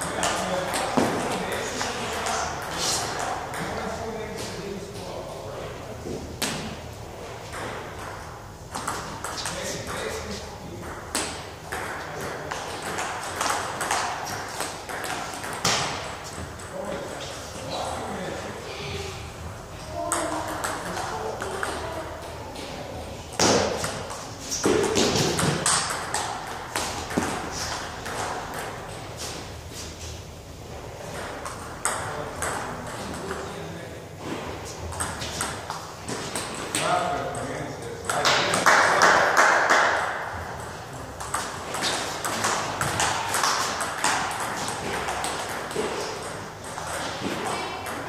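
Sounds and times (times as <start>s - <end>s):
ping pong ball hitting bats: 0.0s - 3.9s, 7.5s - 17.3s, 20.0s - 22.0s, 23.4s - 29.3s, 31.0s - 33.5s, 34.8s - 48.0s
ping pong ball bouncing on table: 10.8s - 16.0s, 23.4s - 28.8s, 31.1s - 33.4s, 38.0s - 48.0s.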